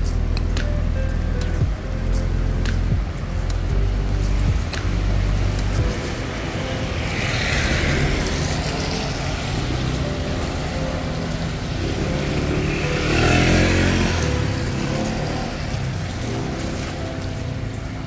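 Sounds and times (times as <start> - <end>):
traffic hiss on wet road: 4.3 - 18.0
scooter engine passing: 4.4 - 18.0.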